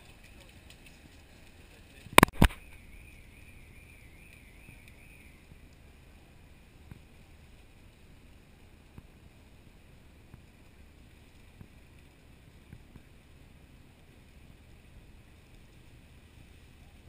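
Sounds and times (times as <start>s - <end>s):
faint clicks: 0.0s - 5.8s
low rumble and hiss: 0.0s - 17.0s.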